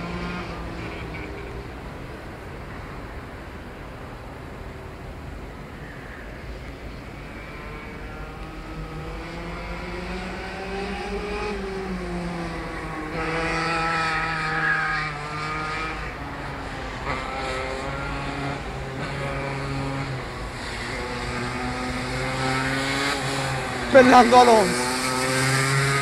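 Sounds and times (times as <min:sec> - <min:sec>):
kart engine revving: 0:07.4 - 0:26.0.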